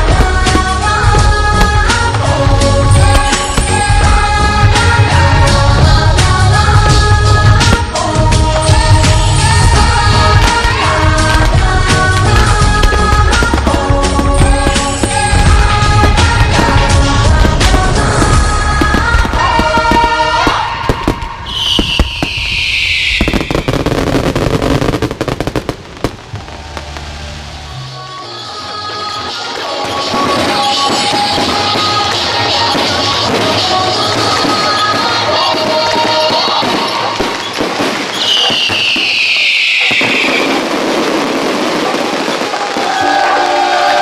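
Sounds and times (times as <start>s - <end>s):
fireworks bangs: 0.0s - 44.0s
firework whistle falling in pitch: 19.5s - 24.8s, 34.5s - 44.0s.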